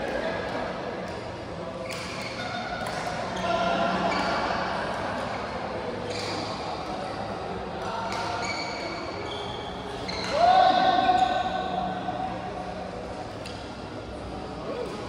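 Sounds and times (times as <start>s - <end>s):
murmur of voices: 0.0s - 15.0s
shoes squeaking on floor: 6.0s - 6.5s, 8.1s - 10.5s.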